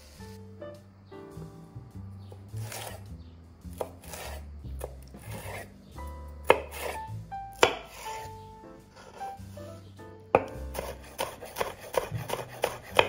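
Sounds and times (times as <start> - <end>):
knife slicing pepper: 2.3 - 3.1, 3.7 - 5.7, 6.4 - 8.3, 10.4 - 13.0.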